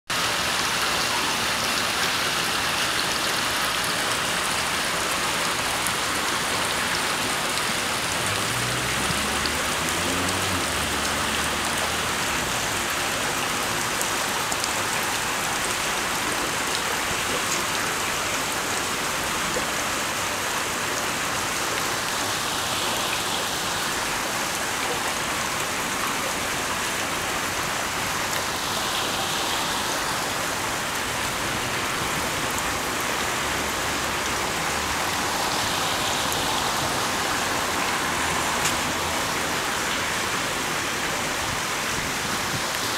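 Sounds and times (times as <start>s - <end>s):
water splashing over stone: 0.5s - 17.6s.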